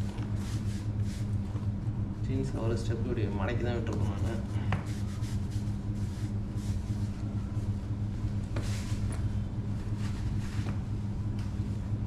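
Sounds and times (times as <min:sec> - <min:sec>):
low steady hum: 0:00.0 - 0:12.0
cloth and leather rustling: 0:04.0 - 0:12.0.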